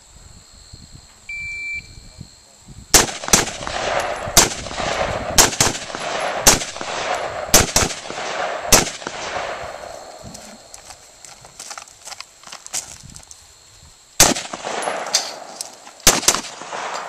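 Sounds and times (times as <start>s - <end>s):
rifle shots echoing: 2.9s - 10.2s, 14.2s - 17.0s.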